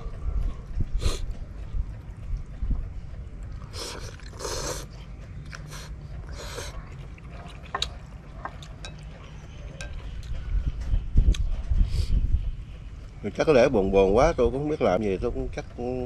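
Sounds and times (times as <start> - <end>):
man slurping noodles: 3.7 - 4.9.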